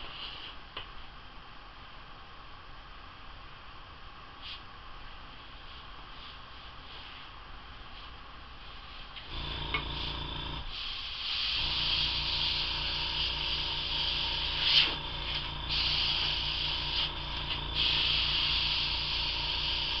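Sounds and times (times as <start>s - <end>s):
compressor pulsing hum: 5.3s - 20.0s
airbrush spray hiss: 8.7s - 20.0s.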